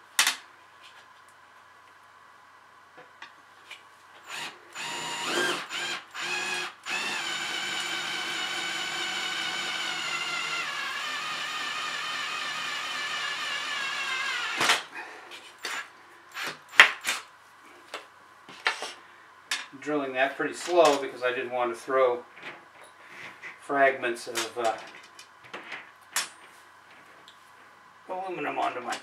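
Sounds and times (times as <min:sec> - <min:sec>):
drill drilling through metal: 0:04.2 - 0:14.8, 0:15.6 - 0:17.2.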